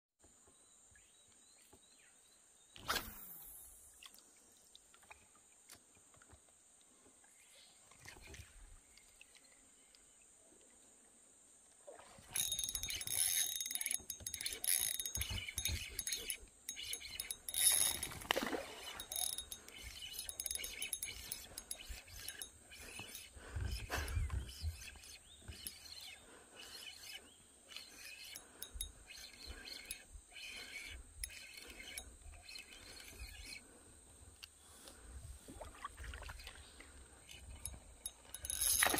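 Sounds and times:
fishing reel clicking and rattling: 12.3 - 33.7, 37.2 - 38.9.

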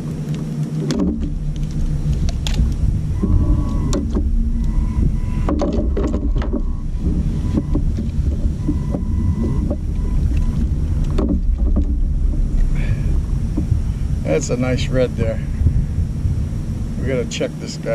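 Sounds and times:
wind buffeting microphone: 0.0 - 17.9
clicks and knocks on kayak: 0.3 - 2.8, 5.4 - 12.7.

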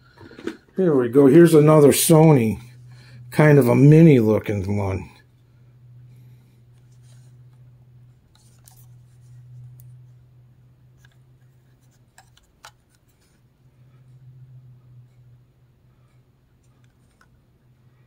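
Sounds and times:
steady low hum: 0.0 - 18.0
plastic radio handling rubbing: 8.3 - 9.8, 11.0 - 13.4.

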